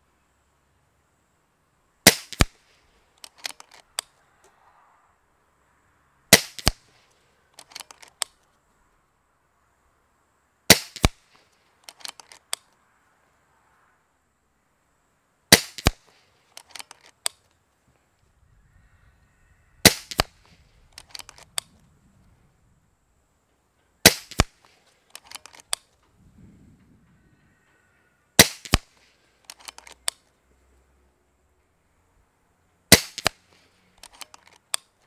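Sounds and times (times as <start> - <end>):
air rifle shots: 2.0 - 3.7, 6.3 - 7.0, 10.7 - 12.2, 15.5 - 16.9, 19.8 - 21.7, 24.0 - 25.8, 28.4 - 29.1, 32.9 - 34.3
rifle action clicks: 2.1 - 4.2, 6.3 - 7.0, 7.6 - 8.5, 10.7 - 12.8, 15.5 - 17.5, 19.8 - 21.8, 24.0 - 26.0, 28.4 - 30.3, 32.9 - 35.0.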